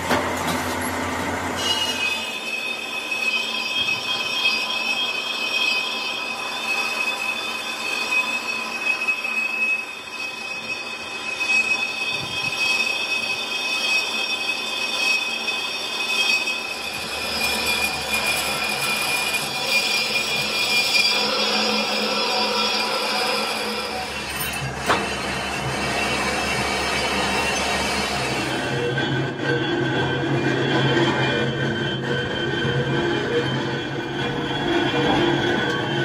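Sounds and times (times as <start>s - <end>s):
lathe tool cutting whine: 1.2s - 36.0s
lathe running: 12.8s - 36.0s.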